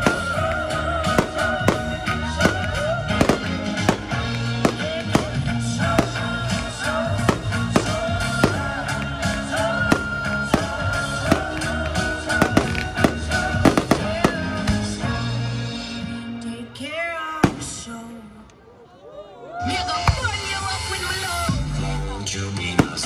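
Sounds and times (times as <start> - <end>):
fireworks bangs: 0.0 - 15.2, 17.4 - 18.1, 22.6 - 23.0.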